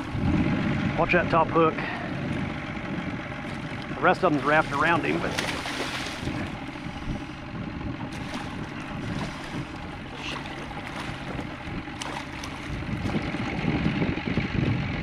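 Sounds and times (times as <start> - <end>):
wind on microphone: 0.0 - 15.0
fish splashing in water: 3.3 - 13.6.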